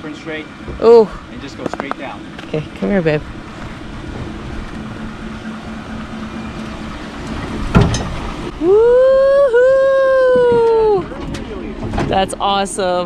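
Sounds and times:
truck engine running slowly: 0.0 - 13.0
truck thump: 3.3 - 8.5
person shouting woo-hoo: 8.6 - 11.2.

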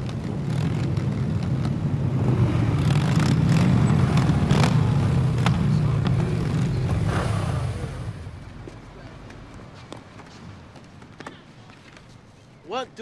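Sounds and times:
motorcycle engines droning: 0.0 - 9.8.

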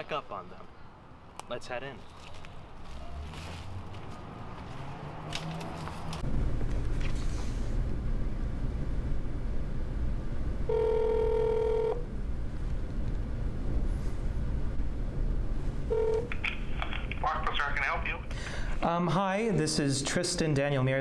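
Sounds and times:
phone ringback tone: 10.7 - 12.0, 15.9 - 16.3.

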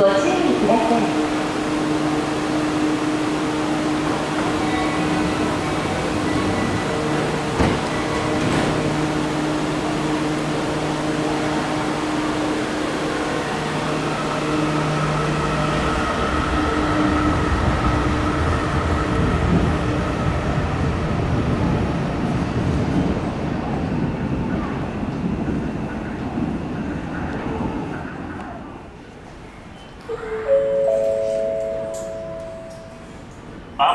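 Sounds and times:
train electrical hum: 0.0 - 33.9
train rumble and whine: 0.0 - 33.9.

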